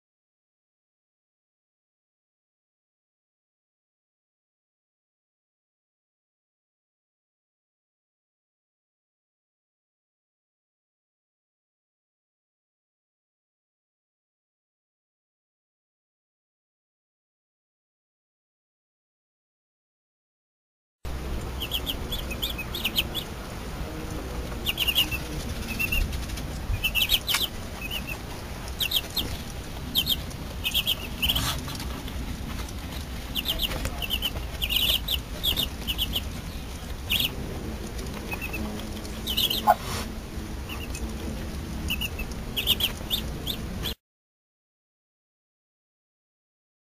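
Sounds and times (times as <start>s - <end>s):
ducklings peeping: 21.2s - 44.0s.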